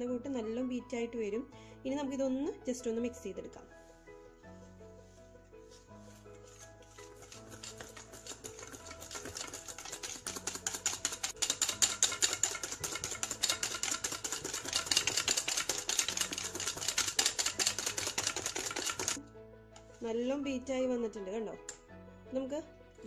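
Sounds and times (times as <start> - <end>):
whisk clicking against bowl: 6.8 - 19.2.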